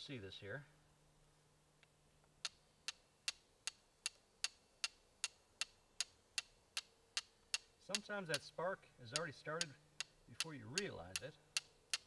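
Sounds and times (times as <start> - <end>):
flint striking steel clicks: 1.8 - 8.5, 9.1 - 12.0.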